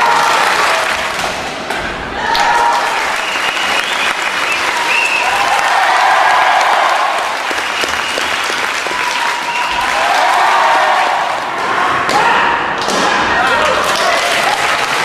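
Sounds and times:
crowd applauding: 0.0s - 1.6s, 2.3s - 11.6s, 13.5s - 15.0s.

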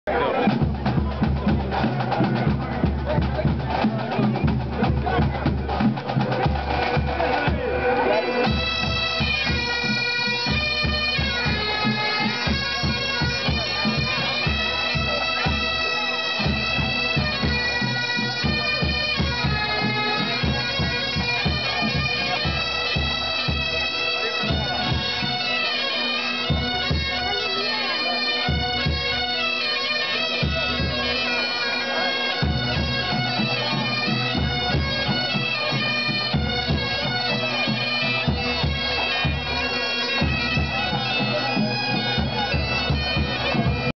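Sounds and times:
bagpipe band playing: 0.1s - 43.9s.

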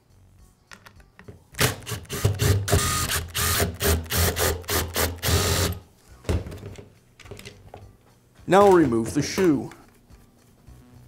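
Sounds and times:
cordless power driver bursts: 1.6s - 5.8s.

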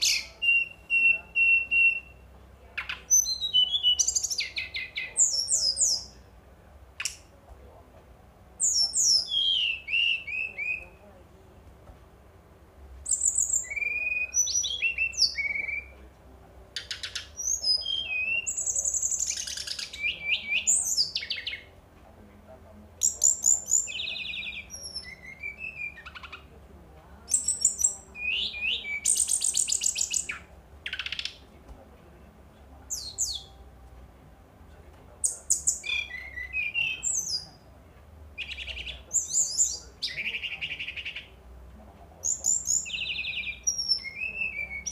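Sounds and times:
flycatcher singing trills: 0.0s - 2.2s, 2.8s - 6.2s, 13.1s - 15.9s, 16.8s - 21.7s, 23.0s - 26.4s, 27.3s - 31.4s, 42.2s - 44.9s.

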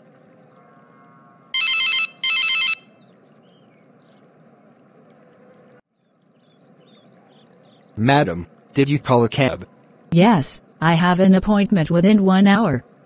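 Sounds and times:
warbling telephone ringtone: 1.6s - 2.9s.

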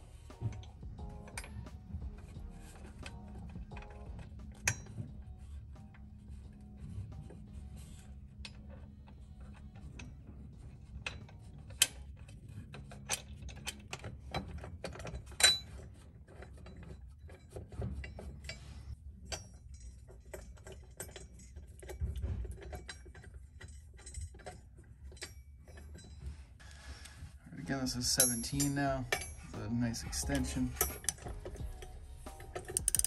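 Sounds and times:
metal clinks of bolts: 28.0s - 29.6s, 30.2s - 33.0s
ratchet wrench clicking: 30.8s - 33.0s.

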